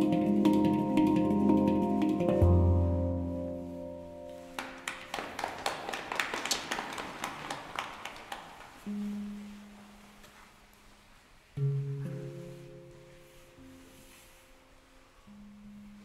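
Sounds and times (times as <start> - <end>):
light taps on handpan: 0.0 - 4.5
handpan note ringing: 0.0 - 4.6, 11.6 - 14.2.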